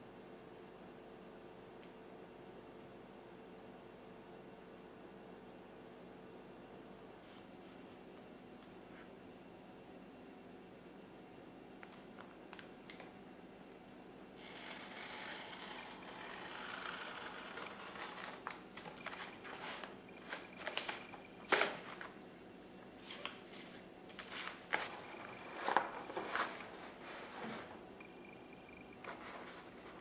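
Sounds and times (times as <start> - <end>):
knife and ruler scraping: 14.4 - 21.2.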